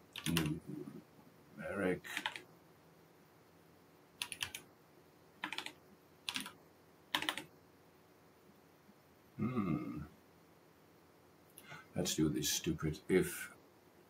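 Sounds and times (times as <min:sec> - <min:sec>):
keyboard typing: 0:00.1 - 0:00.6, 0:02.1 - 0:02.5, 0:04.2 - 0:04.7, 0:05.4 - 0:07.5.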